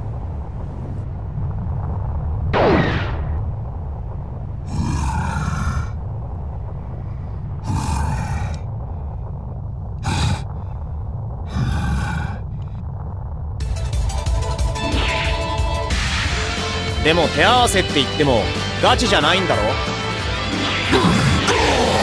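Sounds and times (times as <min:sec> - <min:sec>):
steady low rumble: 0:00.0 - 0:22.0
heavy rasping breaths: 0:10.0 - 0:12.8.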